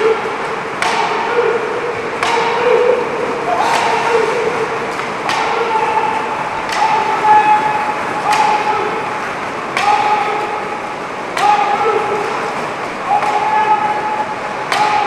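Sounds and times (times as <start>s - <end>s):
sharp echoing knocks: 0.0s - 12.0s.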